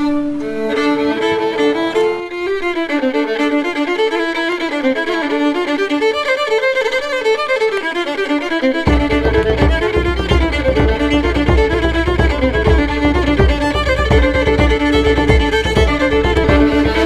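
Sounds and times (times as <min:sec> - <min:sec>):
fiddle playing quick melody: 0:00.0 - 0:17.0
low bass beat: 0:08.9 - 0:17.0.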